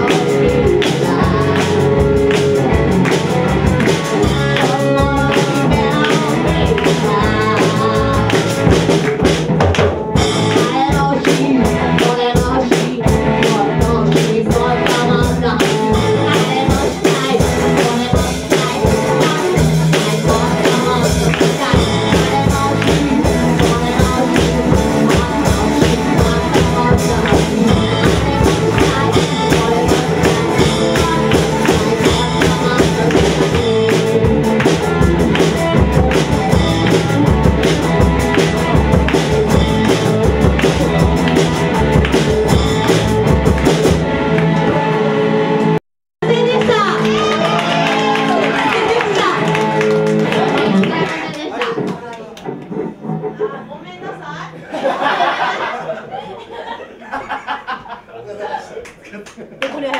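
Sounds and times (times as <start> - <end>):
person singing: 0.0 - 9.0, 10.1 - 43.8
drum kit steady beat: 0.0 - 45.1
bass guitar: 0.0 - 54.4
electric guitar: 0.0 - 54.4.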